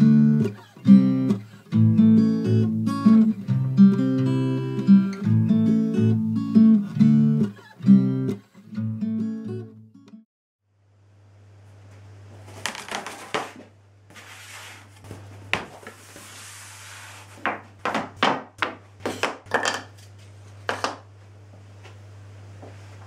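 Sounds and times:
wooden parts knocking on workbench: 17.5 - 20.0, 20.7 - 21.1.

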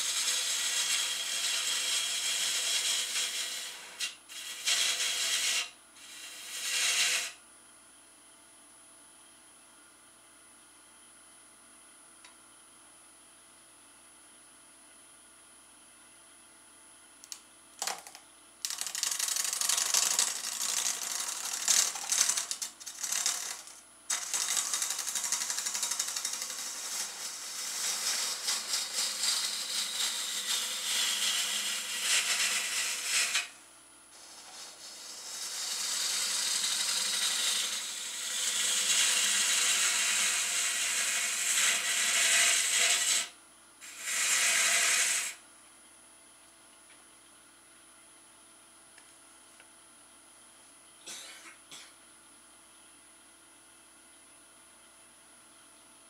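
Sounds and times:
gouge cutting wood on lathe: 0.0 - 7.3, 18.8 - 33.5, 34.2 - 45.4
faint lathe hum: 0.0 - 12.4, 18.6 - 47.9.

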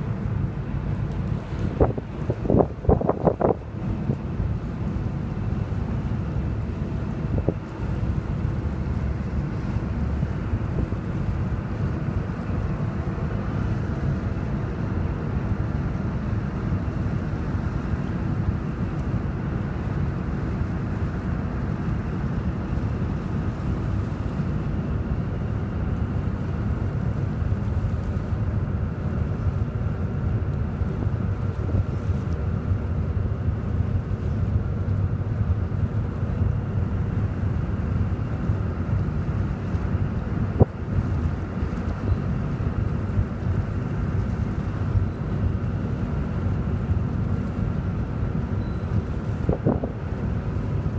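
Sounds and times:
wind buffeting microphone: 0.0 - 14.5, 28.9 - 50.9
faint engine hum: 0.0 - 50.9.

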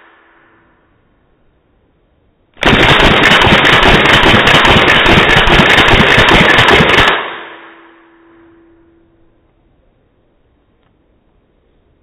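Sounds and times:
airsoft rifle full-auto burst: 2.6 - 7.6.

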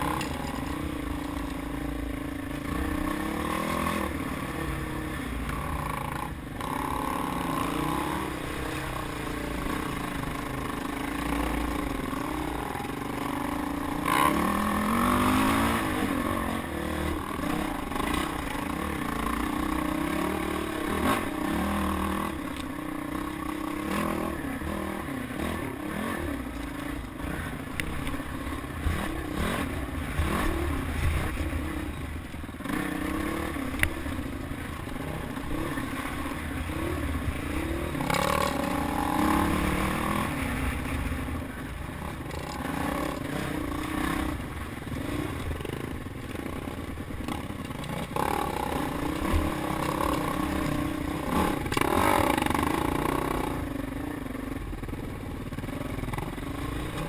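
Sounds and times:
bike rattling and scraping over rocks: 0.0 - 1.6
dirt bike engine revving: 0.0 - 53.8.

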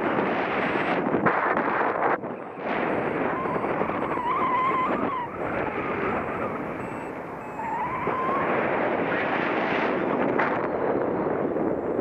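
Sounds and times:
wind buffeting microphone: 0.0 - 12.0
thin wavering whistle: 2.5 - 8.5.

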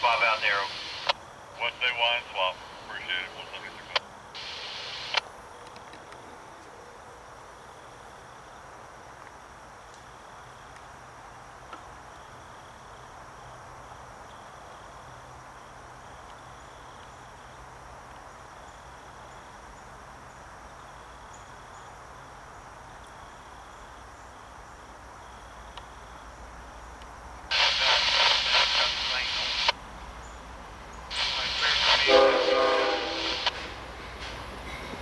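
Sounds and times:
insects chirring: 0.0 - 35.0
locomotive air horn blast: 31.1 - 33.8.

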